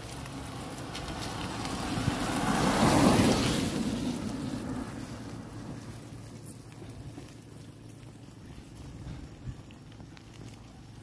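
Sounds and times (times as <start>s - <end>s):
car passing close by: 0.0s - 7.4s.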